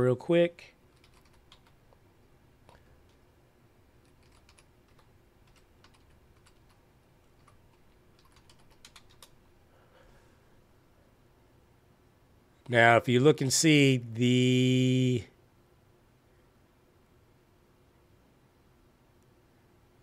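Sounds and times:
faint keyboard typing: 0.9 - 2.0, 2.6 - 3.2, 4.0 - 9.4.

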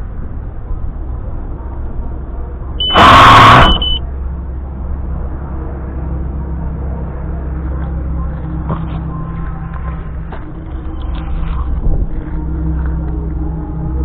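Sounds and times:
low hum: 0.0 - 14.0
high buzzer beep: 2.8 - 4.0
loud burst of noise: 2.8 - 4.0.

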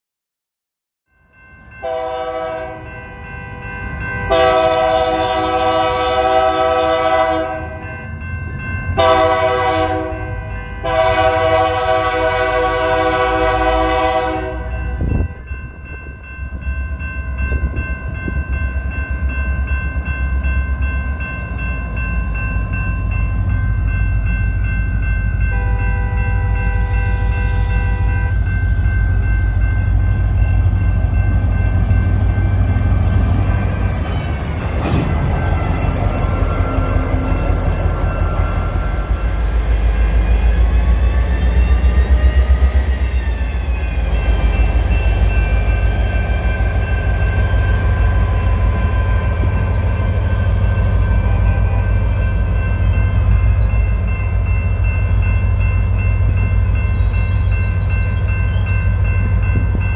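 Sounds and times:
crossing signal bell ringing: 1.1 - 59.9
locomotive air horn: 1.8 - 2.9, 4.3 - 7.9, 9.0 - 15.4, 25.6 - 28.4
thinner second horn: 4.3 - 7.8, 9.0 - 15.2.

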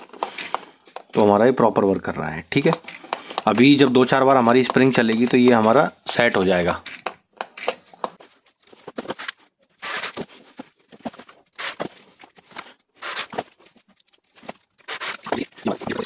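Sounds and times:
plastic toy clicks and knocks: 2.6 - 8.2.

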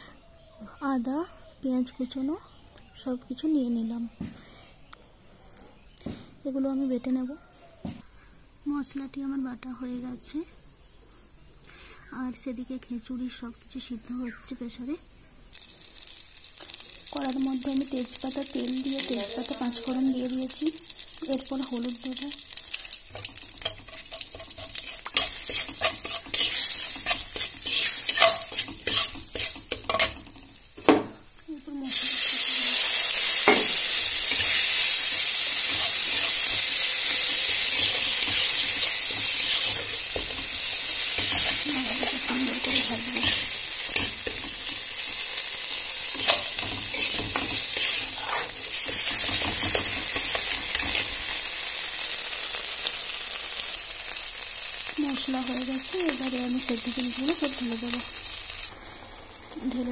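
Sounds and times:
spice paste sizzling in oil: 8.6 - 59.9
metal spatula scraping a wok: 23.2 - 30.6, 33.4 - 34.9, 37.5 - 44.6, 46.0 - 51.1.

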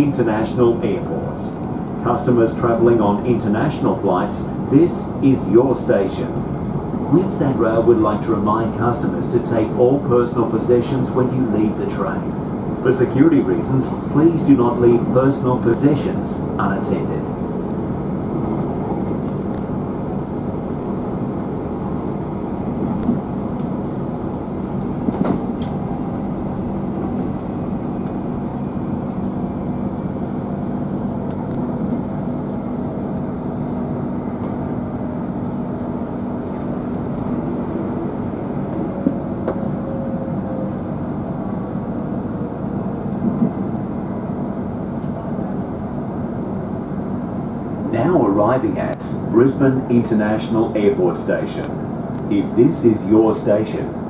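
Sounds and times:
train wheels rumbling and humming: 0.0 - 54.0.

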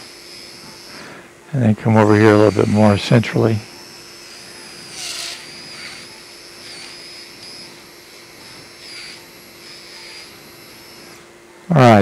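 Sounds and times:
surgical burr whining: 0.0 - 12.0.

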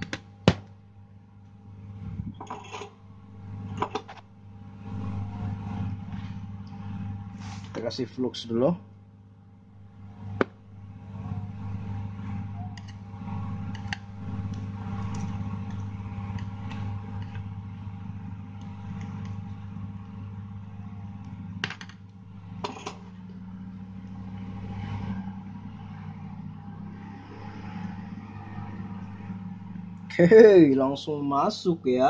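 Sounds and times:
low electrical hum: 0.0 - 32.0.

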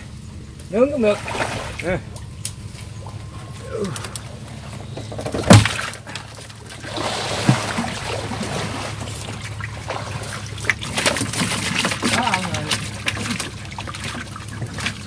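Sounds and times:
water sloshing and trickling: 0.0 - 15.0.

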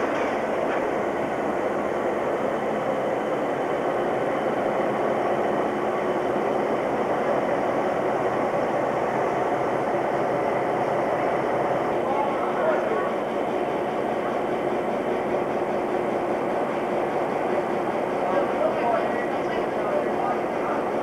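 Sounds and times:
diesel locomotives idling: 0.0 - 21.0.

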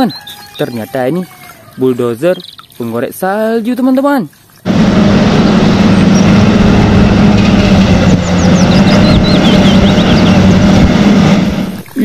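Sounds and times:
diesel engine running: 4.6 - 11.9.

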